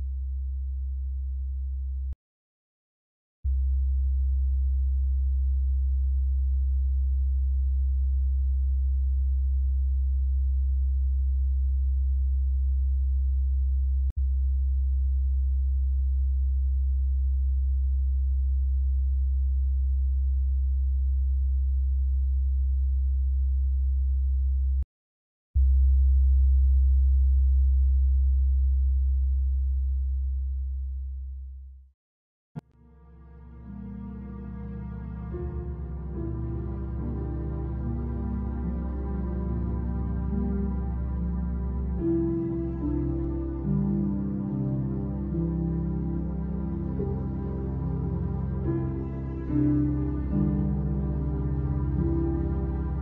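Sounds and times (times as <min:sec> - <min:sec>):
low electronic sine drone: 0:03.5 - 0:24.8, 0:25.6 - 0:31.2.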